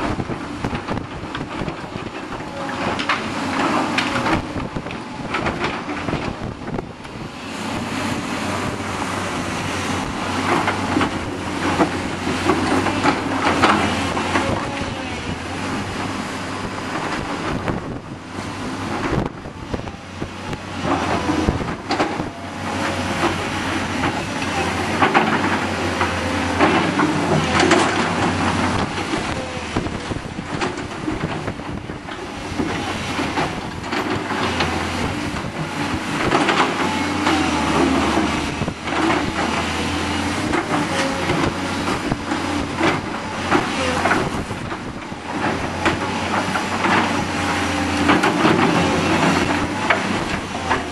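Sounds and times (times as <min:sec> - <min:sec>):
excavators droning: 0:00.0 - 0:50.9
wind buffeting microphone: 0:00.0 - 0:50.9.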